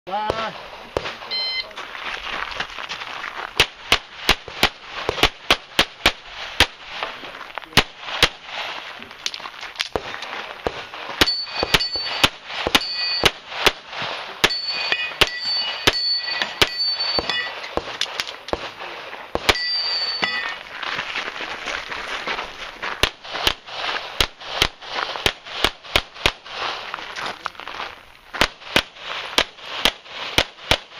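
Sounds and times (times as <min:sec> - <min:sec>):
steel targets ringing: 0:11.2 - 0:13.4, 0:14.4 - 0:17.8, 0:19.4 - 0:20.7.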